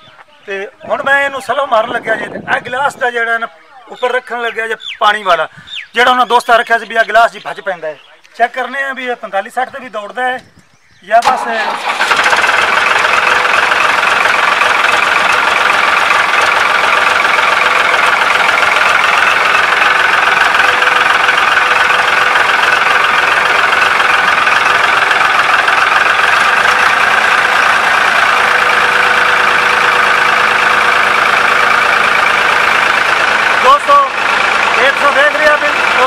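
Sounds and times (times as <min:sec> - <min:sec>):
tractor diesel engine idling: 0:11.2 - 0:36.0.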